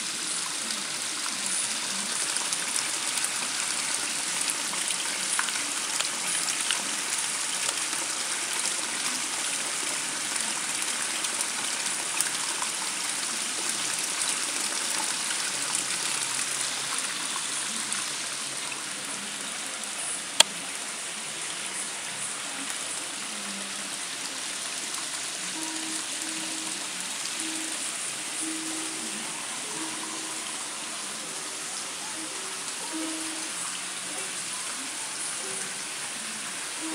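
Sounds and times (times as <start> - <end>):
water splashing and trickling: 0.1 - 20.5.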